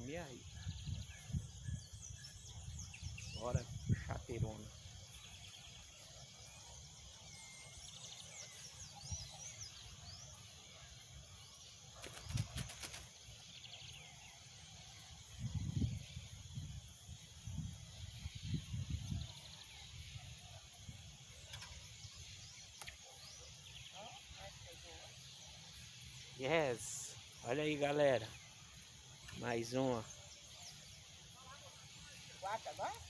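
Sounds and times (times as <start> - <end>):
birds chirping: 0.0 - 33.0
high insect drone: 0.0 - 33.0
wind buffeting microphone: 0.4 - 4.8, 15.2 - 19.5.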